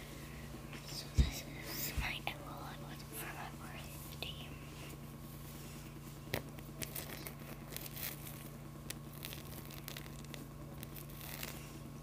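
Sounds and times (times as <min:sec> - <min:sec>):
low steady hum: 0:00.0 - 0:12.0
fingers scratching plush fur: 0:06.2 - 0:11.8.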